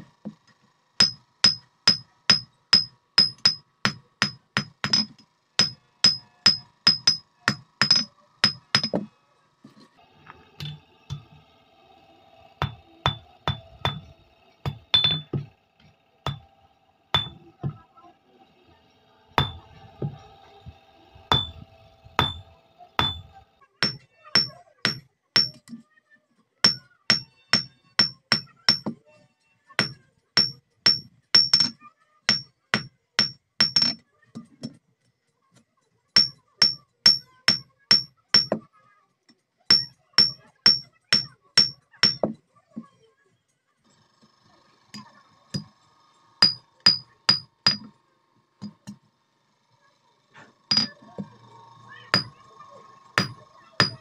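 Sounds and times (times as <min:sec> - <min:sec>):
hammer striking steel on anvil: 0:01.0 - 0:09.1, 0:10.6 - 0:11.4, 0:12.6 - 0:15.5, 0:16.2 - 0:16.5, 0:17.1 - 0:17.8, 0:19.4 - 0:20.2, 0:21.3 - 0:21.6, 0:22.2 - 0:25.6, 0:26.6 - 0:29.0, 0:29.8 - 0:34.0, 0:36.2 - 0:38.6, 0:39.7 - 0:42.4, 0:46.4 - 0:47.9, 0:50.7 - 0:51.2, 0:52.1 - 0:52.4, 0:53.2 - 0:54.0.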